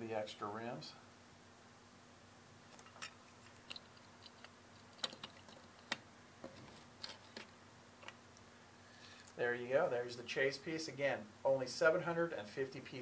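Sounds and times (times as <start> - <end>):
toy vehicles clicking on wood: 2.8 - 6.0.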